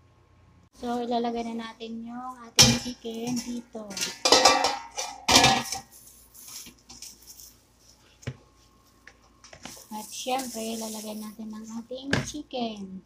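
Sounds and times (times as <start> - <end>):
metal tray clanking against pot: 2.6 - 5.9.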